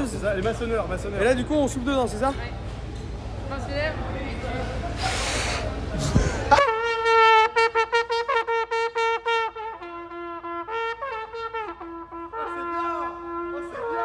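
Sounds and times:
brass band with trumpets playing: 6.5s - 14.0s.

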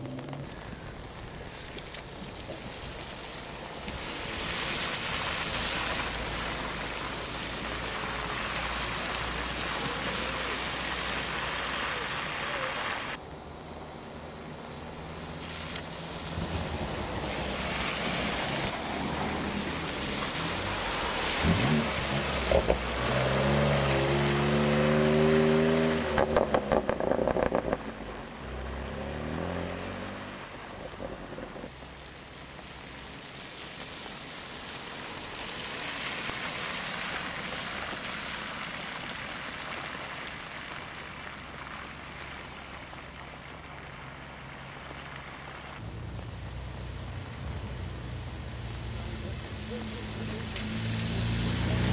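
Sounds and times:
exhaust crackles and pops: 0.0s - 51.9s
tyres splashing through water: 0.0s - 51.9s
car engine accelerating: 14.8s - 31.8s, 45.8s - 51.9s.

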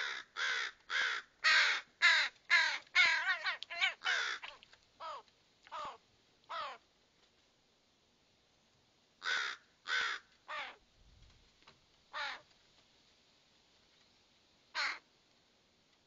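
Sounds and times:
young ravens calling harshly: 0.0s - 6.9s, 9.2s - 10.8s, 12.1s - 12.5s, 14.7s - 15.1s.

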